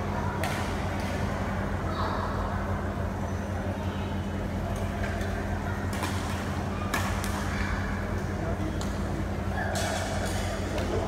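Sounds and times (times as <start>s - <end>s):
low hum in hall: 0.0s - 11.0s
racket hitting shuttlecock: 0.4s - 1.2s, 5.9s - 7.7s, 9.6s - 11.0s.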